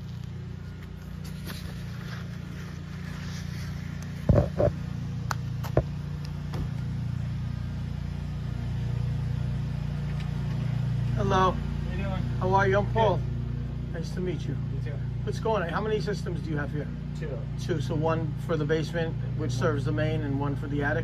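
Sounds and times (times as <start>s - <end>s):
low machine hum: 0.0s - 21.0s
loud knocks: 4.3s - 4.7s.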